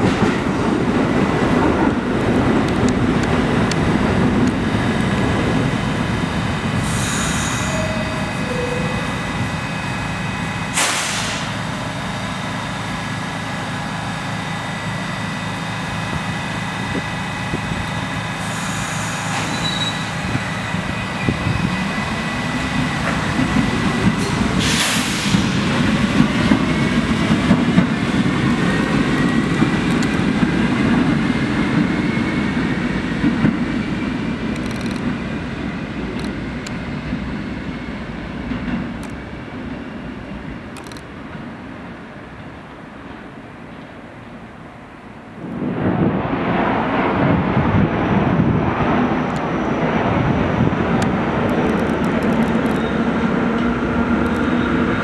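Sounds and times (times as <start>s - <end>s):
subway train motors whining: 0.0s - 55.0s
train rumble: 0.0s - 55.0s
air hiss bursts: 6.8s - 7.8s, 10.8s - 11.6s, 24.6s - 25.6s.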